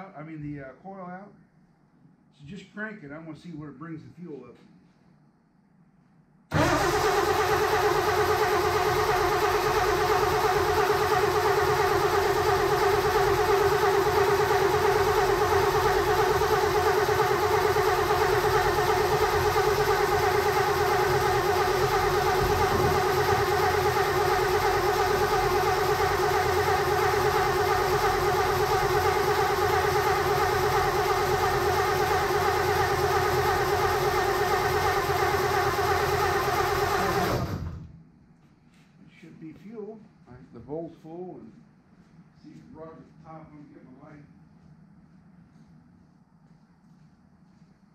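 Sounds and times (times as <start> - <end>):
engine cranking on starter motor: 6.5 - 38.0.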